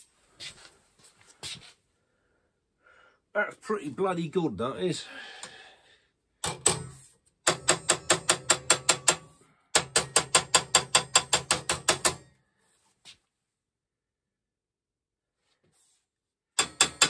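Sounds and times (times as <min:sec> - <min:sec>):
hammer tapping sheet steel: 0:06.4 - 0:12.3, 0:16.6 - 0:17.0.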